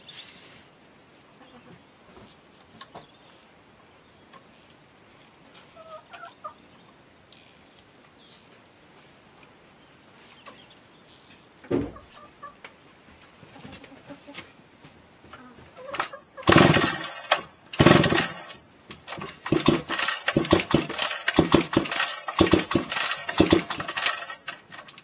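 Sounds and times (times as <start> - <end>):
chickens clucking: 5.6 - 6.7, 11.6 - 12.7, 13.4 - 14.5, 15.3 - 16.6.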